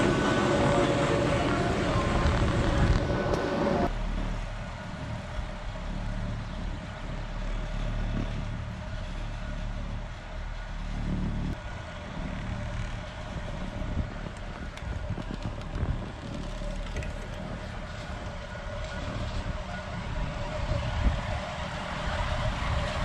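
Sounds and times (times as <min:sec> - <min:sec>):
chairlift mechanical hum: 0:00.0 - 0:23.0.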